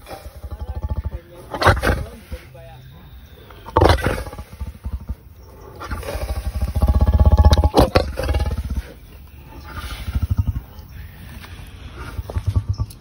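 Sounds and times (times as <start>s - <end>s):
lion growling: 0.0s - 13.0s
sharp clicks: 12.2s - 13.0s.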